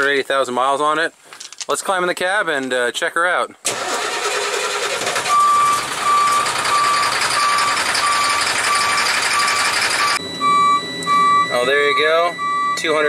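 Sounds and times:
diesel engine running: 0:03.7 - 0:13.0
truck back-up beeper: 0:05.1 - 0:13.0.

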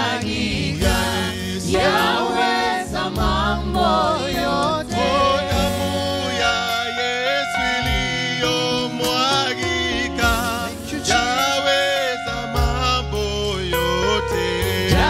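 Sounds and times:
backing singers: 0:00.0 - 0:10.4
keyboard: 0:00.0 - 0:15.0
drums: 0:00.8 - 0:01.3
man singing lead: 0:04.0 - 0:15.0.

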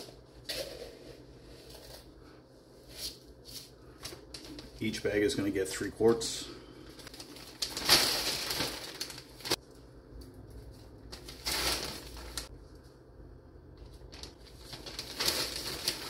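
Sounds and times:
plastic bag rustling: 0:03.0 - 0:05.2, 0:07.0 - 0:09.6, 0:10.7 - 0:12.5, 0:13.8 - 0:16.0
grain pouring into plastic bag: 0:14.2 - 0:16.0.

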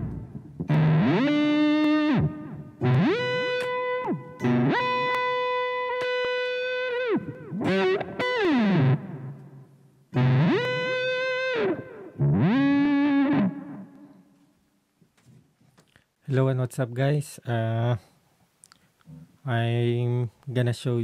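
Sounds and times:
electric guitar pitch dives: 0:00.0 - 0:14.2.

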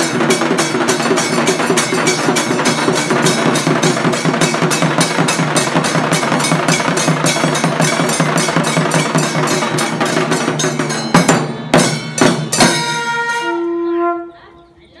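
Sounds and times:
drums beating fast rhythm: 0:00.0 - 0:13.3.

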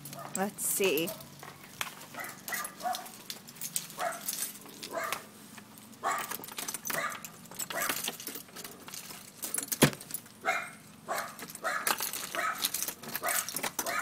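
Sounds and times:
dogs barking: 0:00.1 - 0:00.4, 0:01.0 - 0:03.2, 0:03.9 - 0:05.3, 0:06.0 - 0:08.1, 0:10.4 - 0:14.0
keys jangling: 0:02.2 - 0:05.2, 0:05.9 - 0:10.4, 0:11.1 - 0:14.0
key going into lock: 0:06.1 - 0:10.3, 0:11.2 - 0:14.0.

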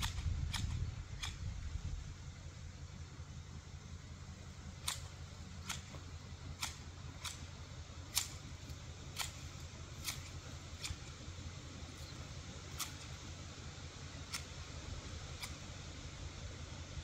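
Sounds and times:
garden shears snipping: 0:00.0 - 0:01.6, 0:04.7 - 0:13.4, 0:14.2 - 0:14.7, 0:15.3 - 0:15.8
steady low hum: 0:00.0 - 0:17.0.

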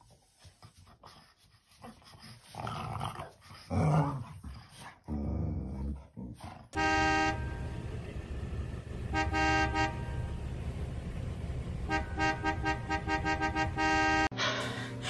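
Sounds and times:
car horn honking: 0:06.8 - 0:14.3.

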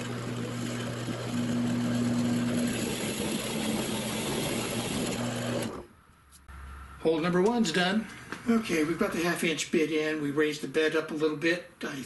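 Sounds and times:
drill bit rasping into wood: 0:00.0 - 0:05.8
drill press motor humming: 0:00.0 - 0:05.9.

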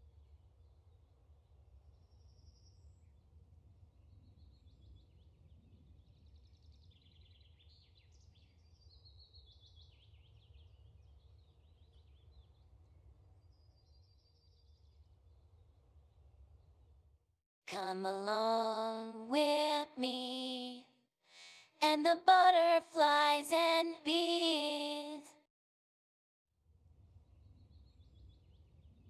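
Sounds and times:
faint bird chirps: 0:00.0 - 0:16.7.

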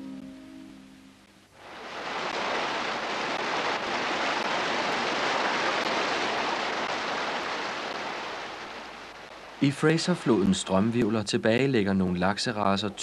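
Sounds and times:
river rapids rushing: 0:01.6 - 0:10.3.

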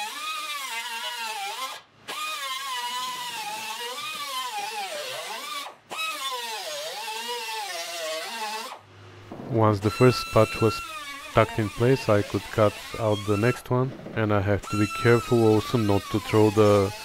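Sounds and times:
cut-off wheel cutting sheet steel: 0:00.0 - 0:08.8, 0:09.8 - 0:17.0.

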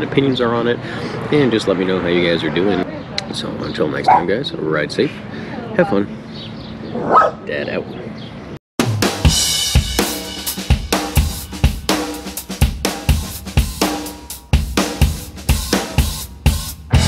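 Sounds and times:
background music with drum kit: 0:08.8 - 0:17.0.

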